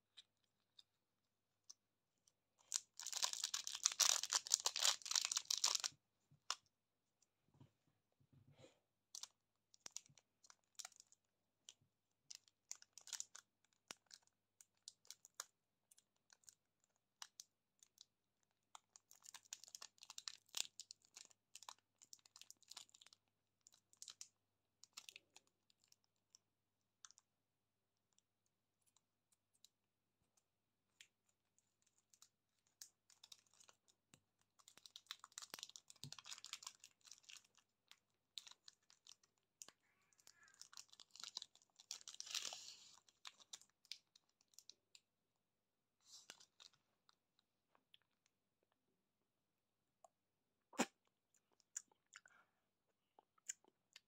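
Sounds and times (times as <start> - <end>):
plastic wrapper crinkling: 2.6 - 5.9, 12.3 - 15.5, 18.7 - 26.4, 31.8 - 45.0.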